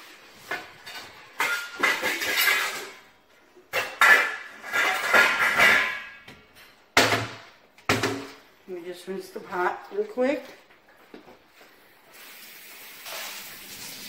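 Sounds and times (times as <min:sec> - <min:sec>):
metal pots clanking and scraping: 0:00.0 - 0:06.8.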